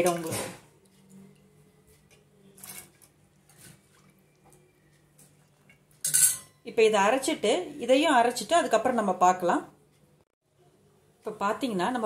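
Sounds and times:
steel ladle clinking and scraping: 0:06.0 - 0:06.6.

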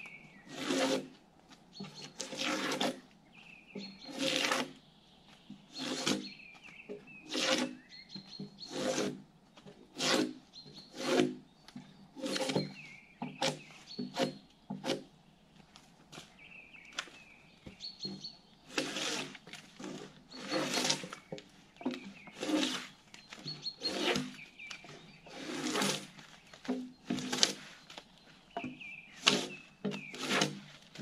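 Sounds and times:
drawknife rasping on bark: 0:00.5 - 0:01.2, 0:01.8 - 0:03.0, 0:03.8 - 0:04.8, 0:05.7 - 0:06.4, 0:07.2 - 0:07.9, 0:08.5 - 0:11.4, 0:12.2 - 0:15.1, 0:18.7 - 0:27.8, 0:28.6 - 0:31.0.

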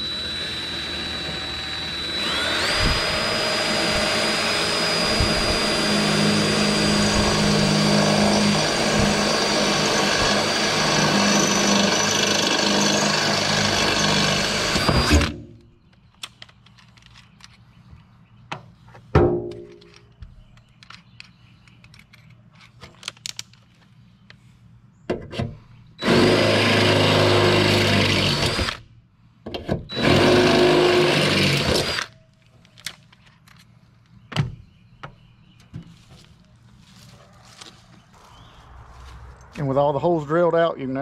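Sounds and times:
cordless drill drilling: 0:00.0 - 0:15.4, 0:26.0 - 0:28.8, 0:29.9 - 0:32.1.

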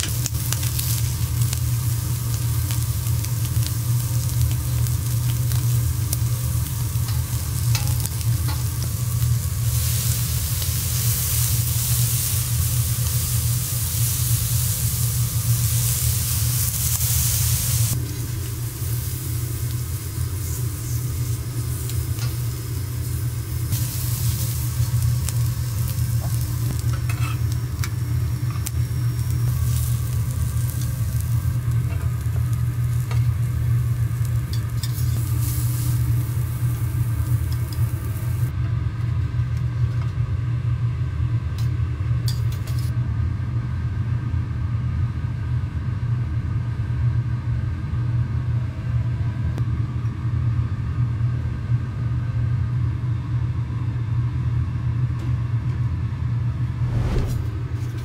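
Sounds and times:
food sizzling on a griddle: 0:00.0 - 0:38.5
steady low hum: 0:00.0 - 0:44.4, 0:56.3 - 0:58.0.

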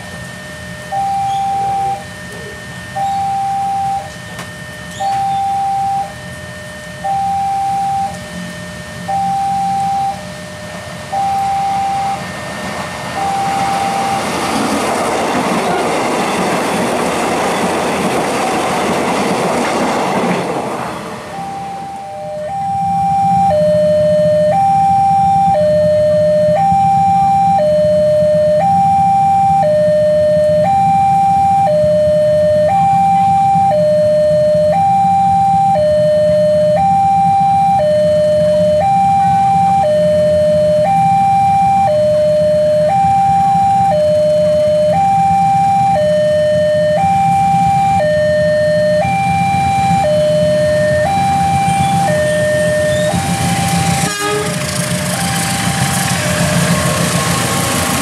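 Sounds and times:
level crossing alarm two tones: 0:00.0 - 0:57.0
electric train rushing past: 0:10.1 - 0:28.8, 0:42.2 - 0:58.0.

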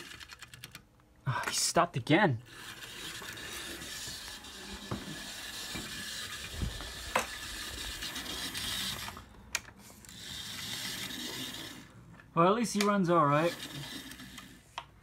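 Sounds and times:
model train motor whirring: 0:00.0 - 0:00.5, 0:02.4 - 0:09.3, 0:10.0 - 0:11.9, 0:13.1 - 0:14.6.

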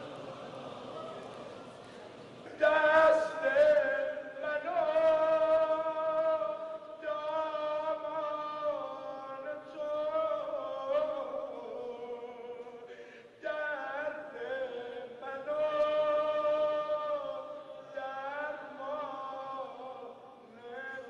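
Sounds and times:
man chanting: 0:02.5 - 0:21.0.

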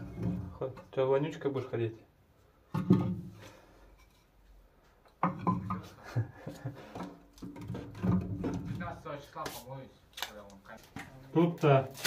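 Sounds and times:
logs knocking and scraping: 0:00.0 - 0:01.0, 0:02.7 - 0:04.4, 0:05.1 - 0:09.6.

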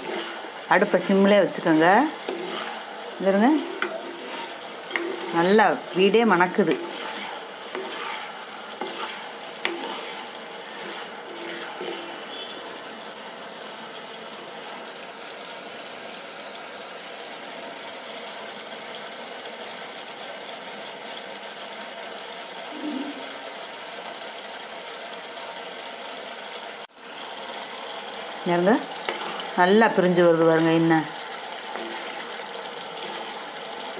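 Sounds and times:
coconut milk sizzling and bubbling: 0:00.0 - 0:33.9.

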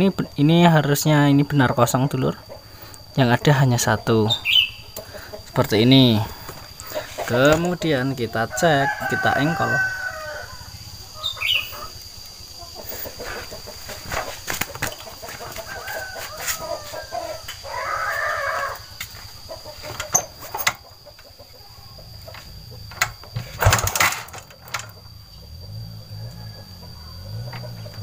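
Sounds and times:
chicken calling: 0:02.2 - 0:23.3
clicks and knocks on motorcycle engine: 0:22.3 - 0:25.1.

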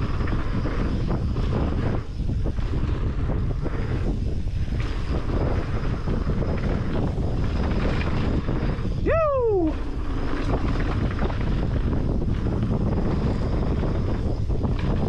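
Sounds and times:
bike tyres rolling over gravel: 0:00.0 - 0:15.0
wind buffeting microphone: 0:00.0 - 0:15.0
rider whooping: 0:08.8 - 0:10.5.

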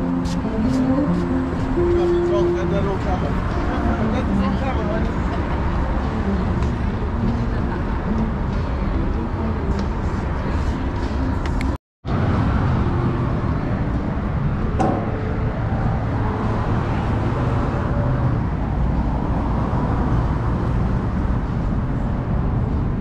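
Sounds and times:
traffic noise from passing cars: 0:00.0 - 0:23.0.

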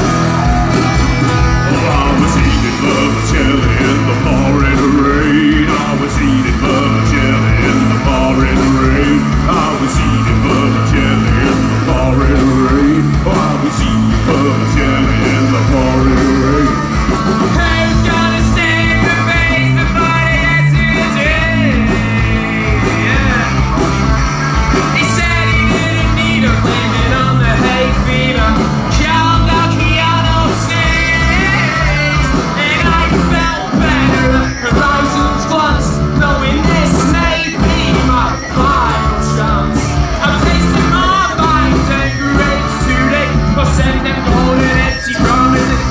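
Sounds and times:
live rock band playing: 0:00.0 - 0:45.9
man singing and yelling: 0:00.0 - 0:45.9.

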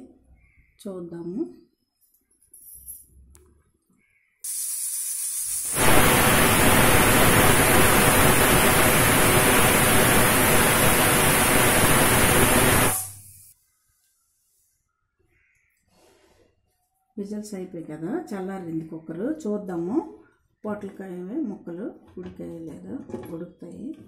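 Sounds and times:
pressure cooker steam whistle: 0:04.6 - 0:13.5.

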